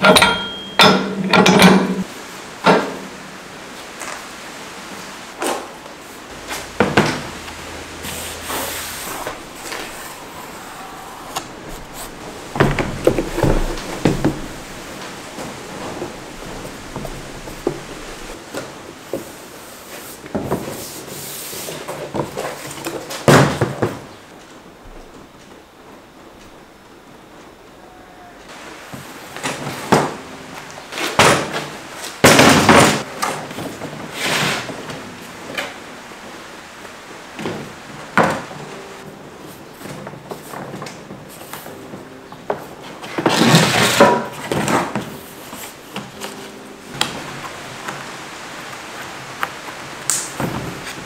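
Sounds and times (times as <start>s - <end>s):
plastic knocks and clatters: 11.6s - 18.0s.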